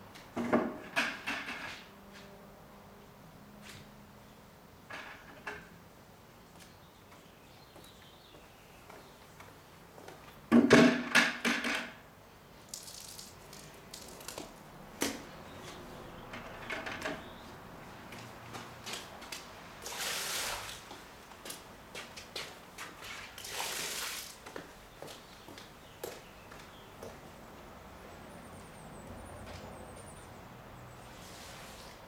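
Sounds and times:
water splashing on pavement: 19.8s - 20.9s, 22.8s - 24.4s.

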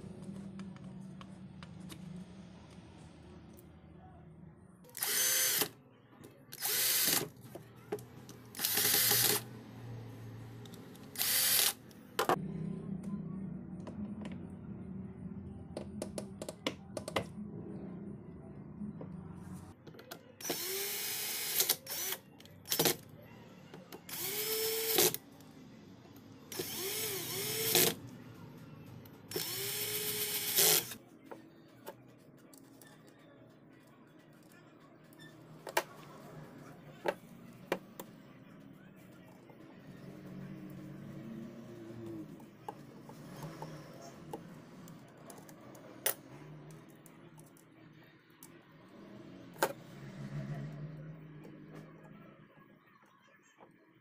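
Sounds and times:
electric screwdriver running: 5.0s - 5.7s, 6.6s - 7.3s, 8.6s - 9.5s, 11.1s - 11.8s, 20.4s - 22.9s, 24.1s - 25.2s, 26.5s - 28.0s, 29.3s - 31.0s.

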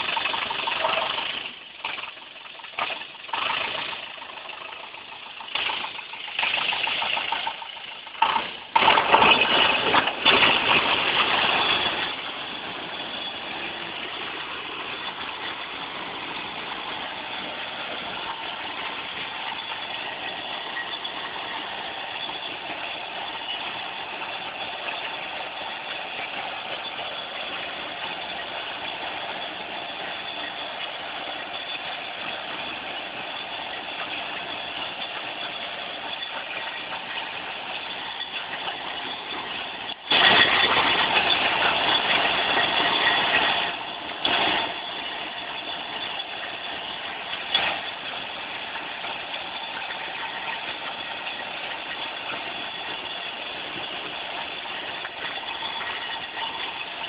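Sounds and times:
tractor engine running: 0.0s - 57.0s
loud rush of noise: 8.5s - 36.1s.

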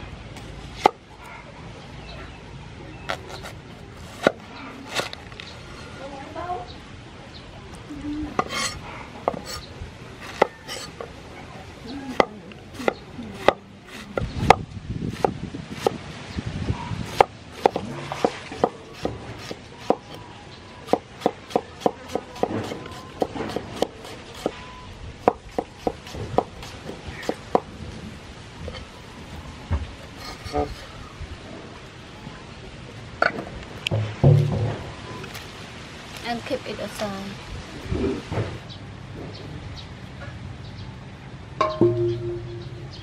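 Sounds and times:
cleaver chopping on wooden board: 12.1s - 16.0s, 17.1s - 20.1s, 20.9s - 24.6s, 25.2s - 27.7s.

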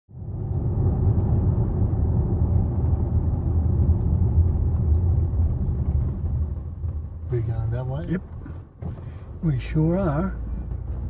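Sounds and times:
car engine and road noise rumble: 0.1s - 11.0s.

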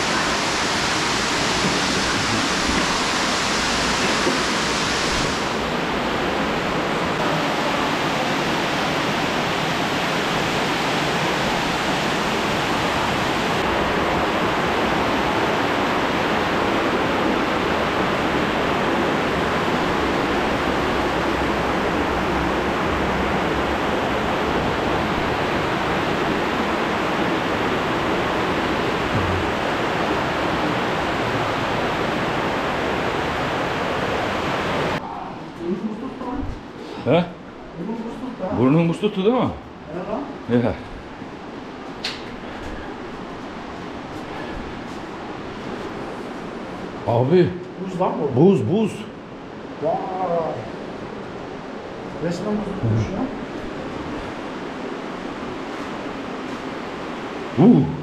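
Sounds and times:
fast-flowing stream: 0.0s - 35.0s.

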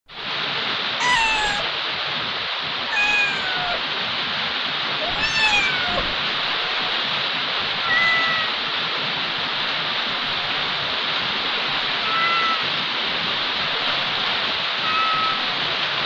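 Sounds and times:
steady hiss: 0.1s - 16.0s
kitten meowing: 1.0s - 1.7s, 2.9s - 3.8s, 5.0s - 6.8s, 7.8s - 8.6s, 12.0s - 12.6s, 14.8s - 15.6s.

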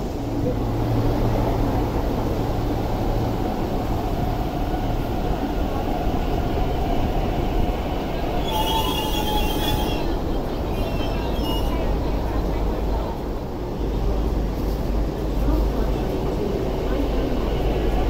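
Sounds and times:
electric train rumbling: 0.0s - 18.0s
train brakes squealing: 8.3s - 12.0s.

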